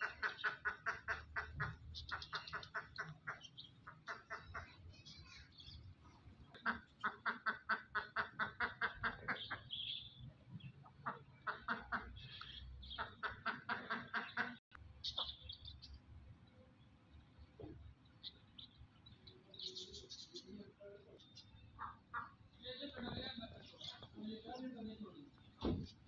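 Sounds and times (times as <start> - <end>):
fowl calling rapidly: 0.0 - 4.8, 6.6 - 9.9.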